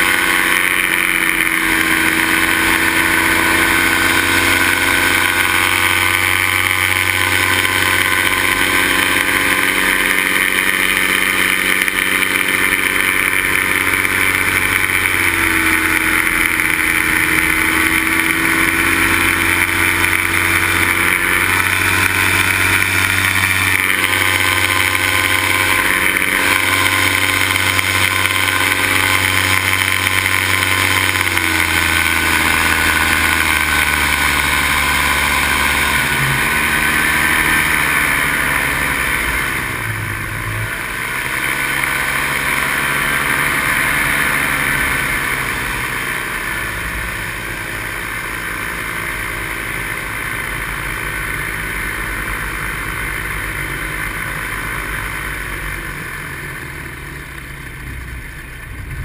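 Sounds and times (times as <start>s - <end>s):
paramotor engine and propeller: 0.0s - 59.0s.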